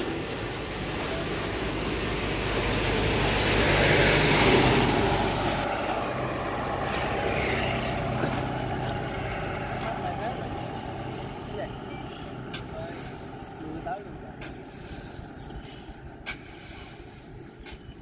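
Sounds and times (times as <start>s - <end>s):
vehicle passing: 0.0s - 17.2s
shovel scraping fertilizer: 6.8s - 9.0s, 11.0s - 18.0s.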